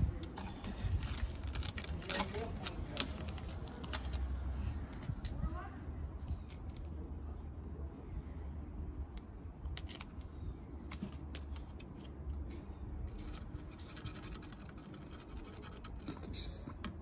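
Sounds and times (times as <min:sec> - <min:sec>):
steady low rumble: 0:00.0 - 0:17.0
cat scratching at leaf: 0:00.2 - 0:05.5, 0:13.1 - 0:16.6.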